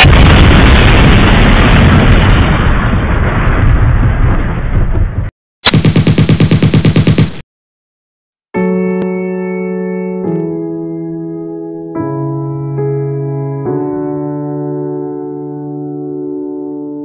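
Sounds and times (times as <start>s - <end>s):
dense rushing rumble: 0.0s - 5.3s
rapid sharp pulses: 5.6s - 7.4s.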